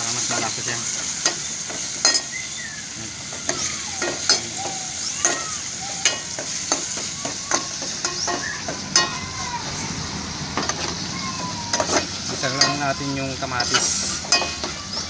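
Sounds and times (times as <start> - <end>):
vegetables sizzling in oil: 0.0 - 15.0
metal spoon knocking on pot: 13.6 - 14.8.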